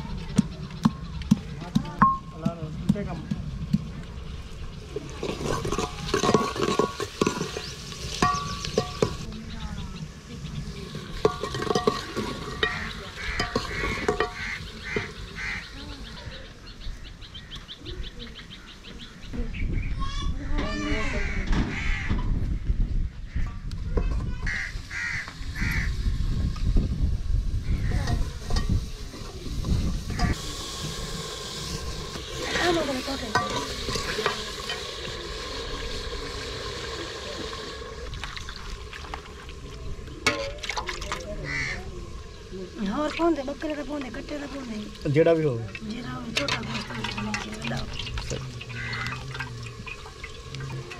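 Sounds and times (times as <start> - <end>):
birds chattering: 0.0 - 23.7, 24.4 - 26.0, 27.6 - 50.9
metal ladle scraping cooking pot: 5.2 - 9.3, 10.9 - 15.2, 28.0 - 41.9, 45.7 - 50.9
ladle clinking against a pot: 5.6 - 9.2, 11.2 - 14.4
honk-like bird calls: 12.6 - 15.8, 24.4 - 26.0, 41.4 - 41.9, 48.7 - 49.4.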